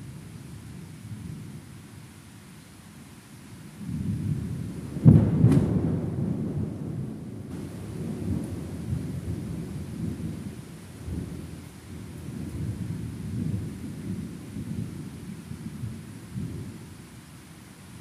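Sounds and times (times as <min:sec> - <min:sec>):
rolling thunder: 0:03.8 - 0:16.8.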